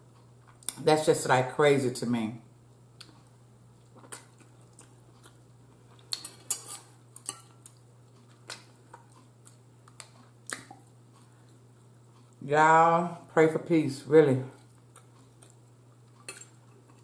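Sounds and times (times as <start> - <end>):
faint low hum: 0.0 - 17.0
fork scraping a plate: 6.2 - 7.6.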